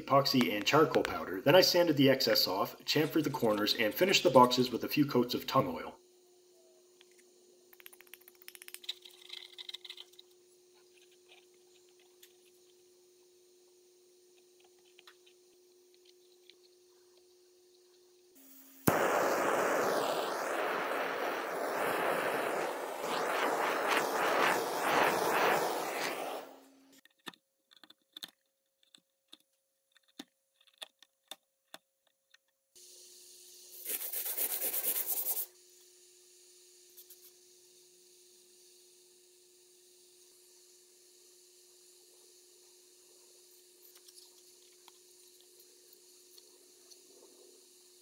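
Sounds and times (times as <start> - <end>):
faint steady hum: 0.0 - 26.9, 34.7 - 48.0
screw stirring powder: 7.8 - 31.4, 33.7 - 35.5
gas torch hissing: 18.4 - 26.9.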